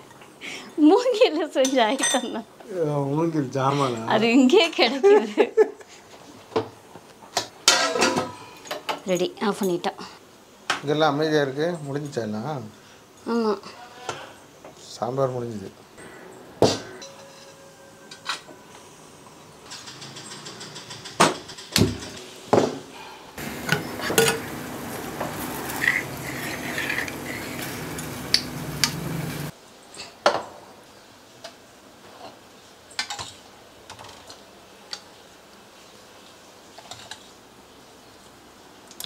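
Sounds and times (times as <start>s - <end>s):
steady hiss with stirring: 2.4s - 38.9s
metal pots knocking: 23.6s - 24.5s.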